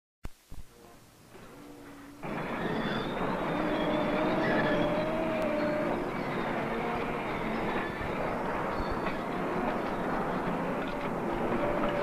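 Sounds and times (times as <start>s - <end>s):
thin metallic squeal: 1.4s - 9.2s
heavy machinery clattering: 2.2s - 12.0s.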